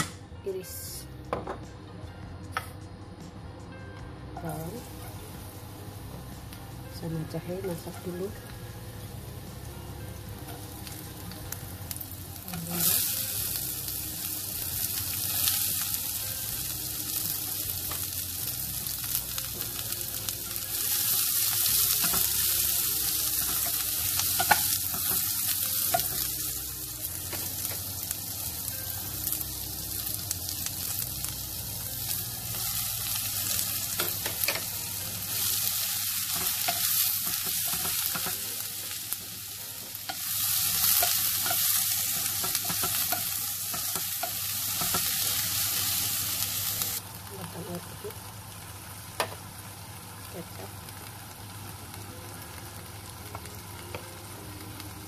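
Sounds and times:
aromatics sizzling in hot oil: 4.4s - 55.0s.

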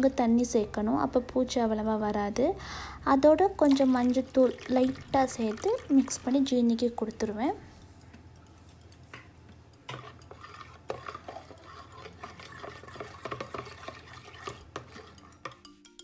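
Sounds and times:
metal spoon stirring in plastic bowl: 3.6s - 16.0s.

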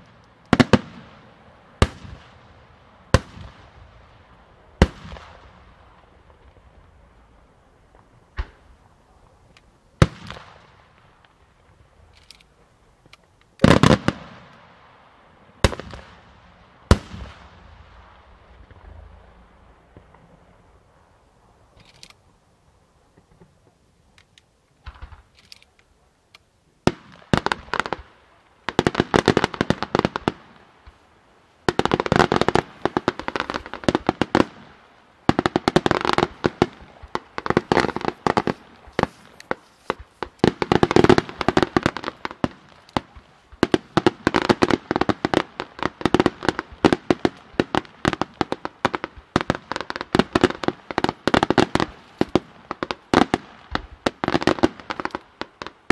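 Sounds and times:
fireworks bangs and crackling: 0.0s - 21.2s, 24.8s - 25.4s, 26.8s - 55.9s
faint firework pops: 7.9s - 8.8s, 24.8s - 25.4s.

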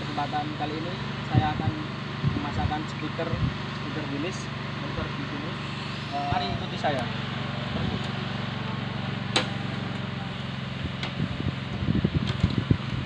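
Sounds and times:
diesel engine idling: 0.0s - 13.0s
windscreen click: 11.0s - 12.8s.

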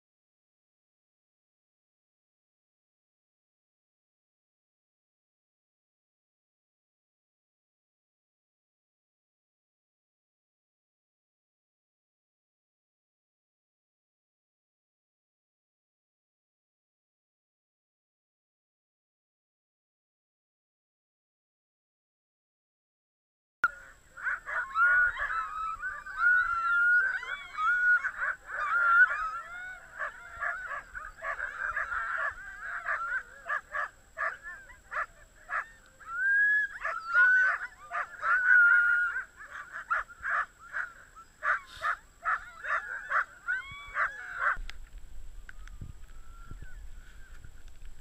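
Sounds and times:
dogs barking and yelping: 23.6s - 44.6s.

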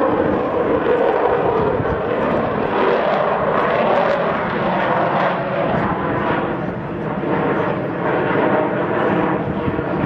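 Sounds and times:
jet aircraft rumble overhead: 0.0s - 10.0s.

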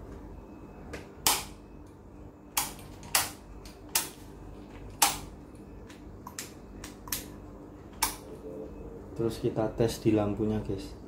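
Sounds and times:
sharp clicks of wiring connectors: 1.2s - 1.6s.

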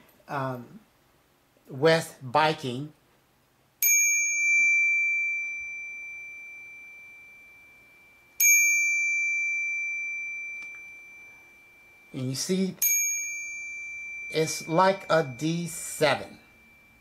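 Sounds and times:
bicycle bell ding: 3.8s - 17.0s.

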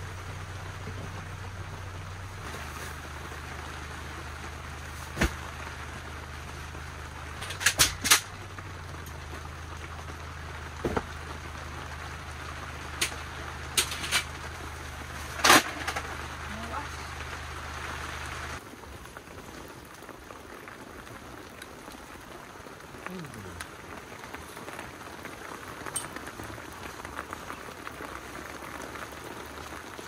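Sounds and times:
camping gear knocking and clacking: 7.4s - 8.3s.

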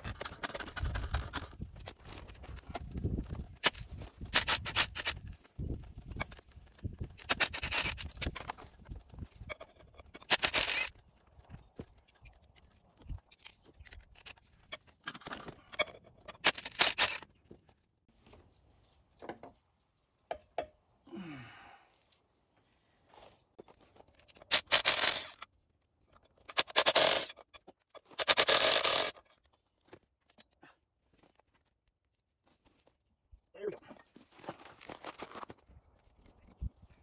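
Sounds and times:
scraping and handling of tools: 0.0s - 18.4s, 23.1s - 30.6s
cordless power driver spinning: 24.4s - 25.4s.

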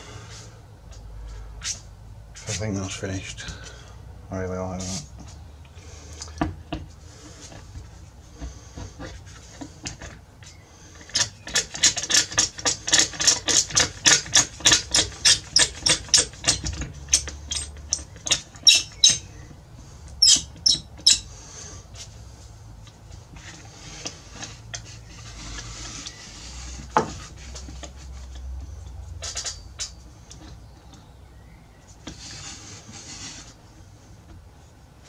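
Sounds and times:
hand tool rubbing on wood: 10.8s - 19.3s, 23.2s - 28.7s, 32.0s - 34.2s.

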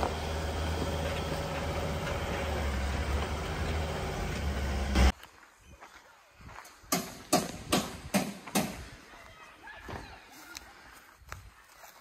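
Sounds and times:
vehicle driving on dirt track: 0.0s - 5.3s.

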